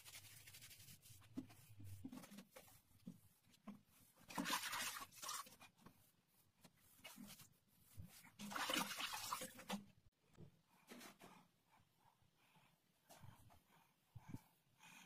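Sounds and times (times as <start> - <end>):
damp sponge rubbing tiles: 0.0 - 9.3.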